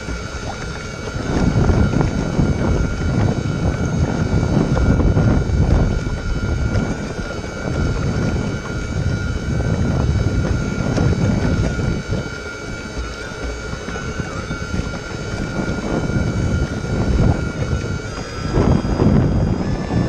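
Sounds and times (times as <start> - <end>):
electric motors whining: 0.0 - 20.0
wind rumble on microphone: 0.0 - 20.0.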